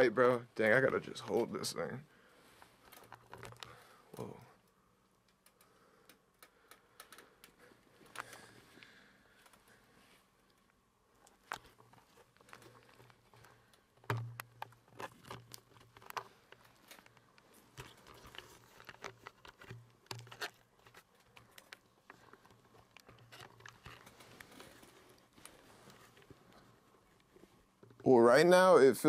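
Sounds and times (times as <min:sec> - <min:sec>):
camera handling clicks and rustling: 0:02.6 - 0:03.8, 0:11.2 - 0:28.0.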